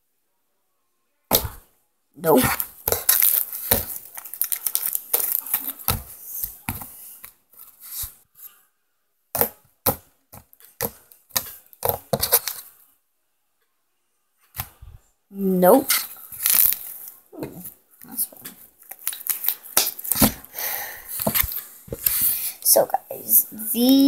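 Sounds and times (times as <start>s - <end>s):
slime crackling and popping: 2.2s - 6.9s, 15.9s - 22.5s.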